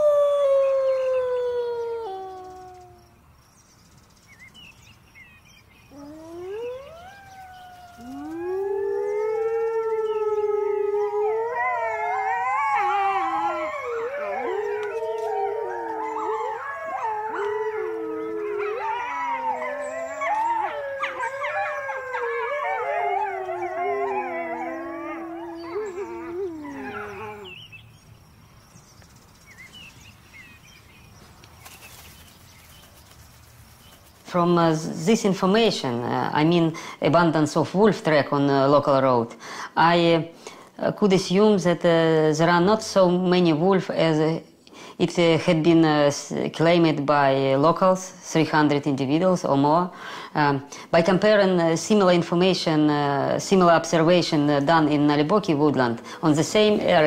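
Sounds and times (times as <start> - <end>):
wolves howling: 0.0 - 3.2, 5.9 - 27.7.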